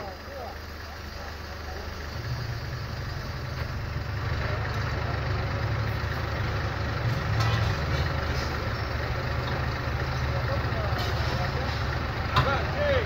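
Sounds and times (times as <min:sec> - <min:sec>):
large vehicle engine idling: 0:00.0 - 0:13.0.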